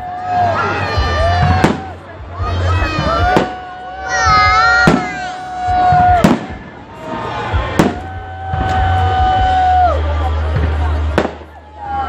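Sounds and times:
fireworks bangs: 0:01.2 - 0:02.0, 0:02.6 - 0:09.4, 0:10.4 - 0:11.6.

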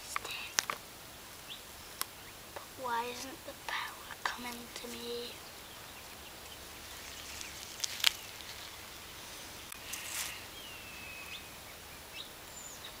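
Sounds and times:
faint outdoor hiss: 0:00.0 - 0:13.0
light rustle: 0:06.0 - 0:10.6.

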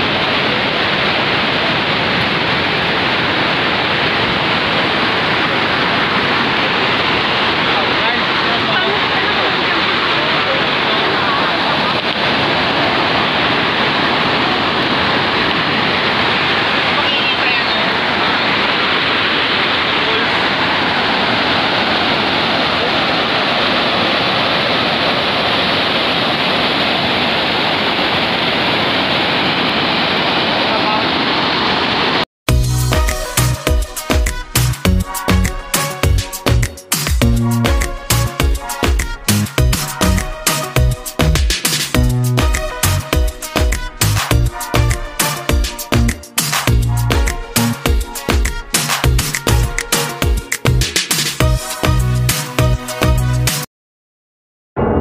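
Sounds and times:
water rushing over dam spillway: 0:00.0 - 0:32.2.

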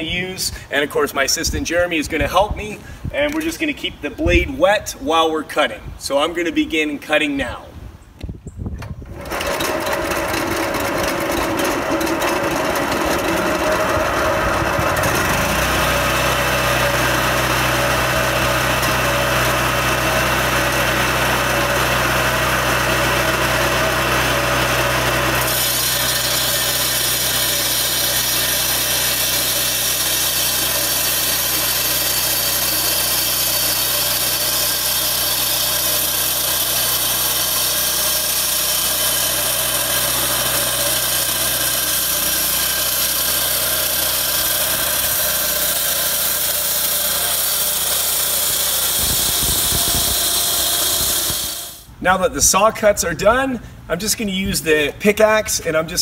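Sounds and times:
floor saw cutting asphalt: 0:09.1 - 0:51.9.

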